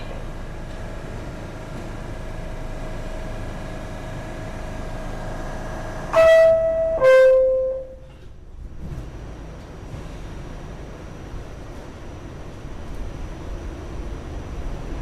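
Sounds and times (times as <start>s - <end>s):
subway car equipment hum: 0.0s - 15.0s
two-note door chime: 6.2s - 8.0s.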